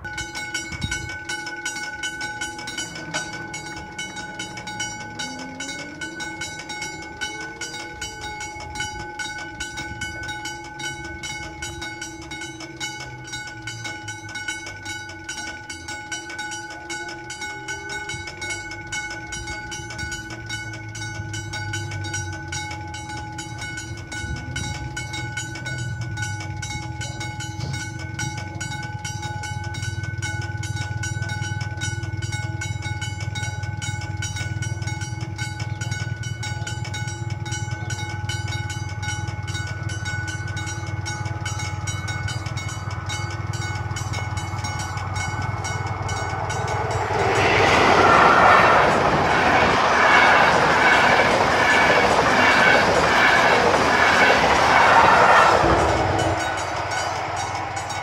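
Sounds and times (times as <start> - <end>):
level crossing warning bell: 0.0 - 58.0
low tone rising and falling: 41.7 - 58.0
low rumble: 41.9 - 58.0.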